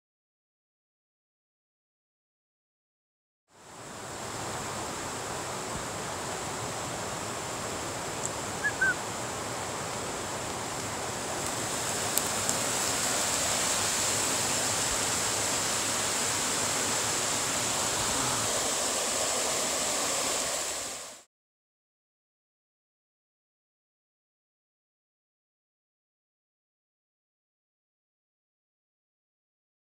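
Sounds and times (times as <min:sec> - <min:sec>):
water rushing over rocks: 0:03.7 - 0:21.3
short high chirps: 0:08.6 - 0:09.0.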